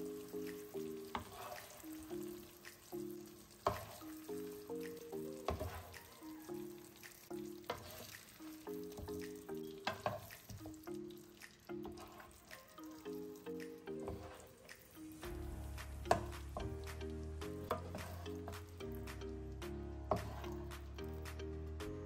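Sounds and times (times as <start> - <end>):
sauce sizzling and squelching: 0.0 - 21.3
gentle background music: 0.0 - 22.0
spoon knocking against pan: 3.6 - 4.0, 4.8 - 6.0, 8.9 - 10.9, 16.0 - 17.0.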